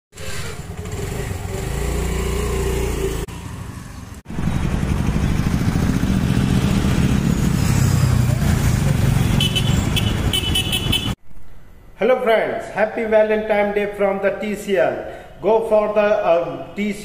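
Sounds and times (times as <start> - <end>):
street noise rumble: 0.1 - 11.4
scooter engine idling: 0.6 - 2.1, 4.4 - 6.3.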